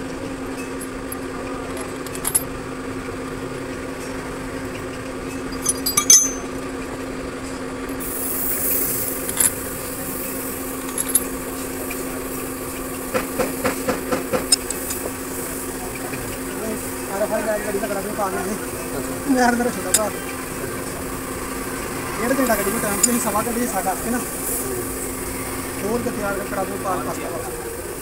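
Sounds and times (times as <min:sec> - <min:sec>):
steady machine hum: 0:00.0 - 0:25.8
metal tools clinking: 0:00.6 - 0:02.5, 0:05.3 - 0:06.7, 0:07.8 - 0:09.7, 0:10.8 - 0:11.4, 0:14.5 - 0:15.1, 0:19.7 - 0:20.2.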